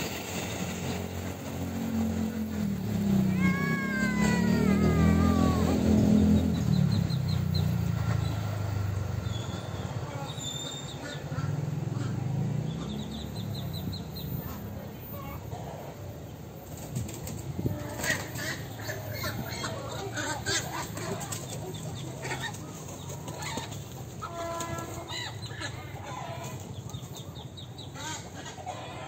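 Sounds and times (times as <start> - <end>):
chickens clucking: 16.7 - 29.0
wings flapping: 20.5 - 25.2.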